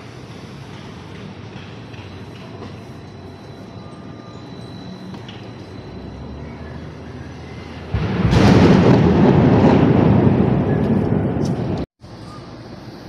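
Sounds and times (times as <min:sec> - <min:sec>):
thunderclap: 0:07.8 - 0:11.9.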